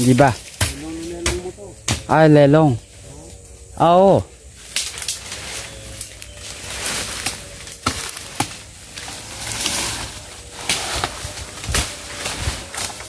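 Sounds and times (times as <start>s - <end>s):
brush rustling: 2.8s - 13.0s
footsteps crunching through leaves: 4.5s - 13.0s
twigs snapping: 4.6s - 13.0s.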